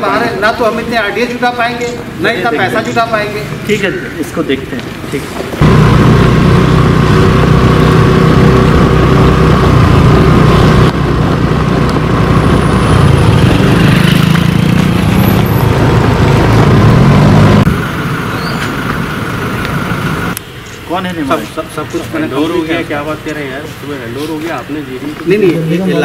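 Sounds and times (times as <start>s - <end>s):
vehicle engine running loudly: 5.4s - 20.8s.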